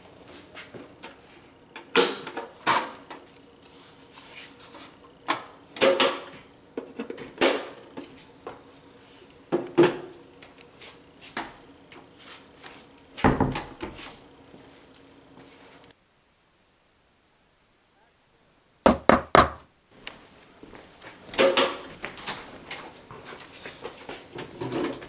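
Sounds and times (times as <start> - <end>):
faint steady hum: 0.0 - 25.0
closet door thud: 13.2 - 13.8
objects knocking on shelf: 18.9 - 19.6.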